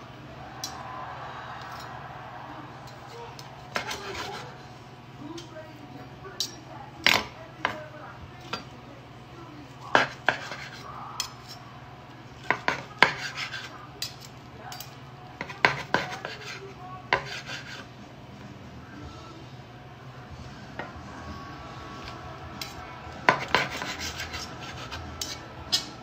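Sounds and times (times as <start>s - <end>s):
steady low hum: 0.0s - 26.0s
knife and fork clinking and scraping: 2.8s - 4.6s, 6.3s - 7.8s, 8.4s - 8.8s, 9.7s - 11.8s, 12.4s - 17.9s, 22.0s - 26.0s.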